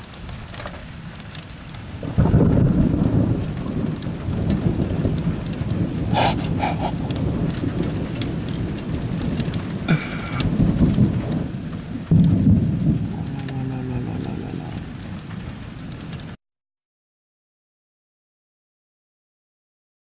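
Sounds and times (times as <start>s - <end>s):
steady rain: 0.0s - 16.4s
thunder rumbling: 1.9s - 16.4s
sharp thunder crack: 2.0s - 13.4s.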